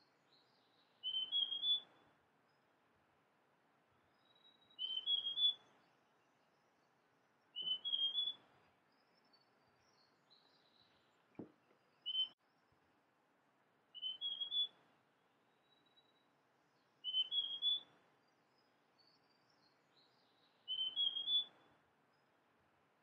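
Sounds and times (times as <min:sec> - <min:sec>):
bird singing whistled notes: 0:00.1 - 0:02.0, 0:04.1 - 0:06.9, 0:07.5 - 0:11.2, 0:11.8 - 0:12.6, 0:13.9 - 0:14.8, 0:15.6 - 0:16.2, 0:16.8 - 0:21.7.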